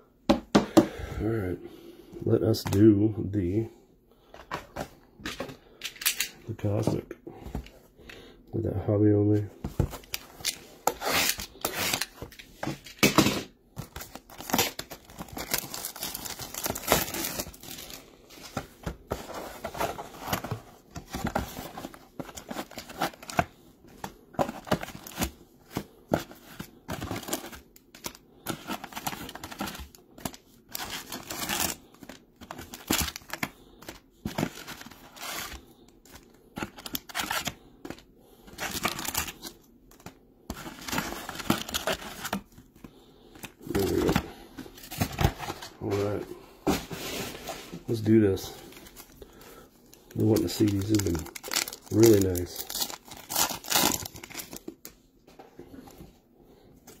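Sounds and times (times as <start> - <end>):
card wrappers tearing and crinkling: 9.9 - 13.2, 13.8 - 46.1, 49.9 - 54.9.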